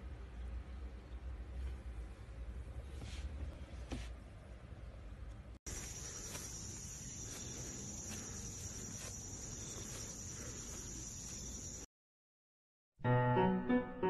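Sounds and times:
insects shrilling: 0:05.7 - 0:11.9.

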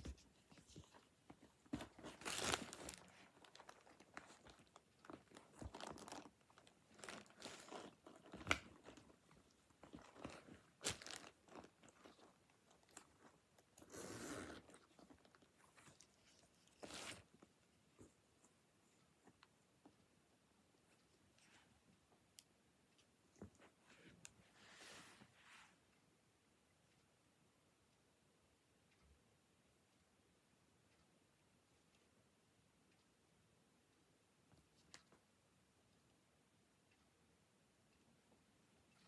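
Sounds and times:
leather handbag rustling: 0:01.7 - 0:04.5, 0:05.1 - 0:06.3.

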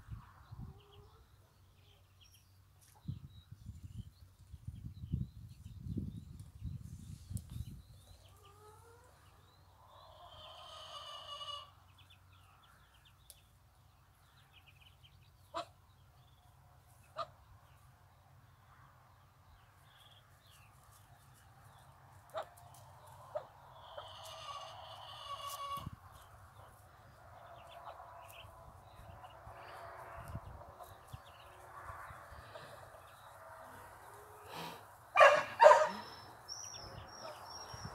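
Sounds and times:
ducklings peeping: 0:14.4 - 0:17.8, 0:22.3 - 0:26.8, 0:27.4 - 0:34.7, 0:35.6 - 0:37.9.

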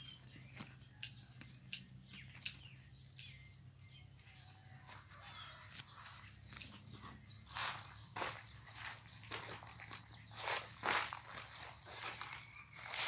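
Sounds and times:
faint bird chirps: 0:00.0 - 0:13.0
footsteps: 0:04.8 - 0:13.0
plants rustling: 0:05.8 - 0:13.0.

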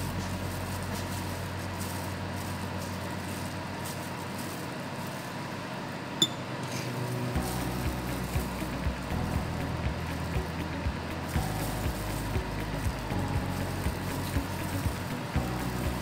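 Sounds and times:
room hum: 0:00.0 - 0:16.0
glass clink: 0:06.2 - 0:06.5.

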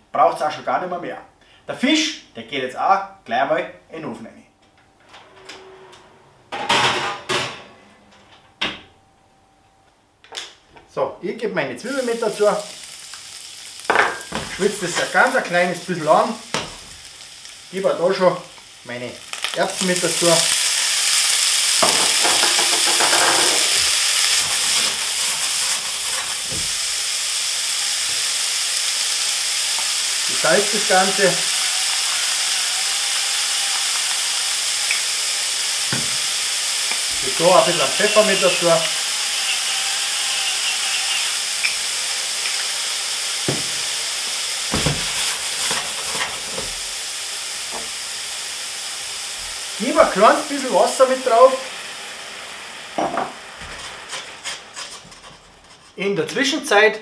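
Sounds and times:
peas sizzling in a hot pan: 0:11.8 - 0:55.9.

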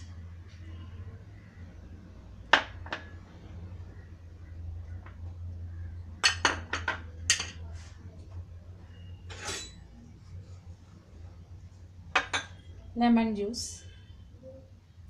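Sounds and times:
low steady hum: 0:00.0 - 0:15.0
dishes and utensils clinking: 0:06.2 - 0:07.7, 0:09.3 - 0:09.9, 0:12.2 - 0:12.7.

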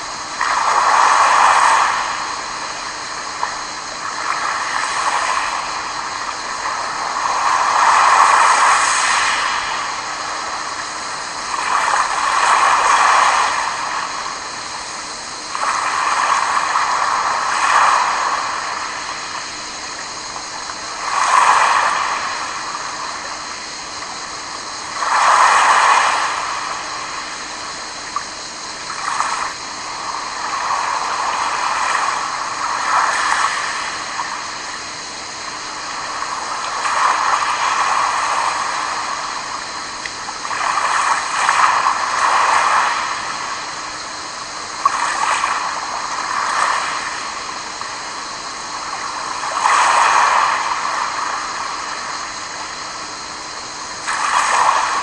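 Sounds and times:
waves washing onto pebble beach: 0:54.0 - 0:55.0.

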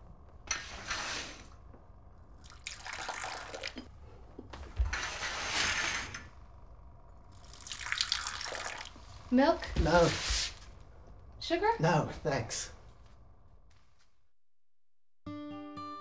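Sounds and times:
tea pouring into cups: 0:02.3 - 0:04.0, 0:07.2 - 0:09.3.

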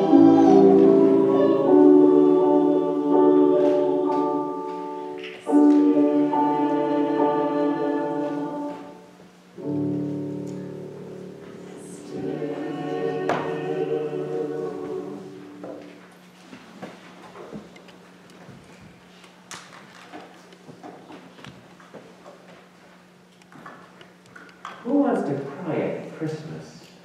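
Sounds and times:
choir singing a hymn: 0:00.0 - 0:16.0.

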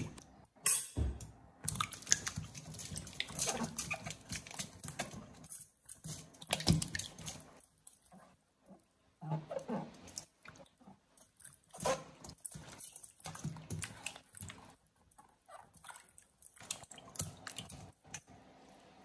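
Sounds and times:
hands splashing water in bowl: 0:01.7 - 0:07.6
wet rubbing of vegetable skin: 0:02.0 - 0:08.3.

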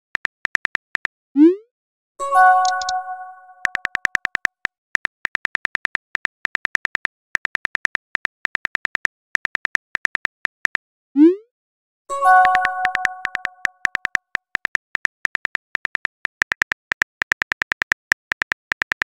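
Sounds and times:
multi-tone message chime: 0:02.2 - 0:03.9, 0:12.1 - 0:13.7
keyboard tap clicks: 0:02.6 - 0:03.0, 0:03.6 - 0:10.8, 0:12.4 - 0:19.0.

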